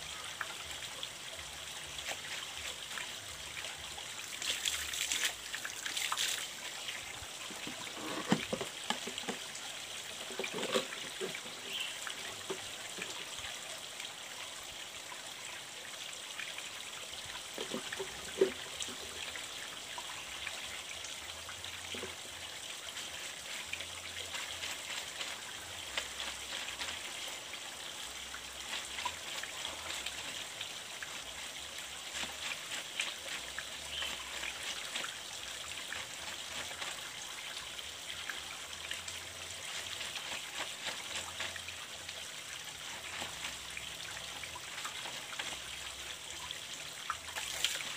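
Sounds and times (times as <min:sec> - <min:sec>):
water trickling in a stream: 0:00.0 - 0:47.9.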